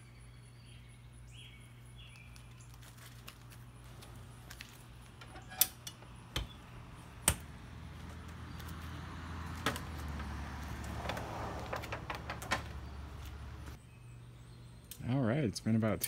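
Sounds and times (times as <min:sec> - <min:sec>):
metal door latch clacks: 0:11.0 - 0:12.9.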